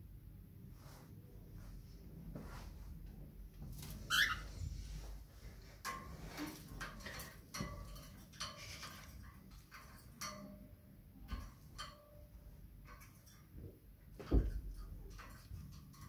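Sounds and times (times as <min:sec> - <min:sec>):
clicks and taps on wire birdcage: 0:05.8 - 0:12.2, 0:12.8 - 0:13.6, 0:14.2 - 0:16.0.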